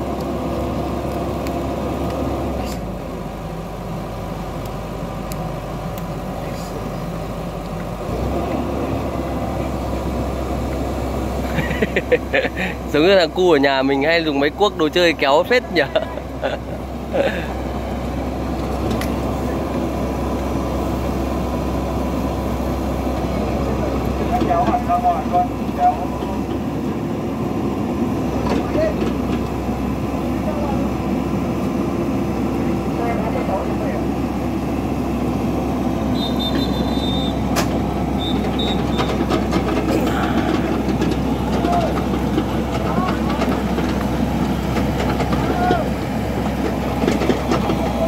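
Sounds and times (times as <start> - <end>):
diesel engine rumbling under load: 0.0 - 48.0
high whistle: 36.1 - 37.4, 38.2 - 39.0.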